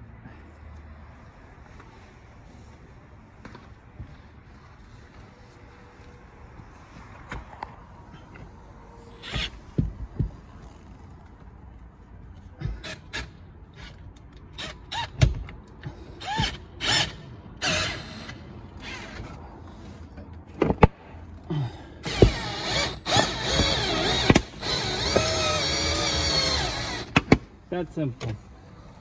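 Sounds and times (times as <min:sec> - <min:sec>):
wire squeaking through adhesive: 0:09.1 - 0:09.6.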